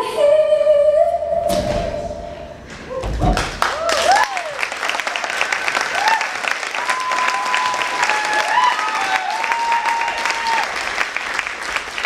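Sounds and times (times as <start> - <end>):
audience applauding: 3.4 - 12.0
people whooping: 3.6 - 4.8, 5.7 - 10.9.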